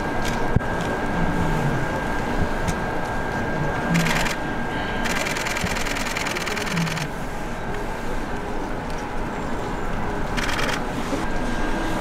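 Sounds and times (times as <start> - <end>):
steady background noise: 0.0 - 12.0
camera shutter burst: 4.0 - 4.4, 5.0 - 7.1, 10.4 - 10.8.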